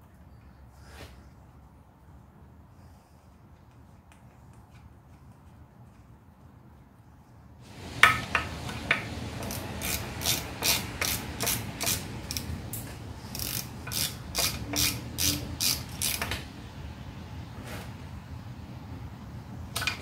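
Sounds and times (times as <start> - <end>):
socket ratchet clicking: 8.0 - 16.4.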